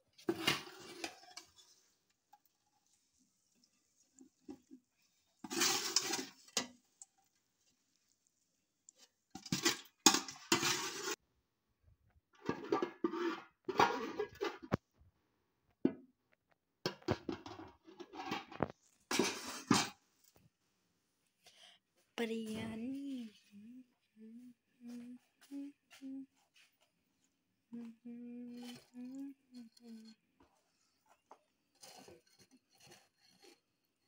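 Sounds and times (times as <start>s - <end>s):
metal spoon scraping a pot: 0.2s - 7.4s, 8.9s - 11.2s, 12.4s - 14.7s, 17.1s - 20.0s, 28.5s - 34.0s.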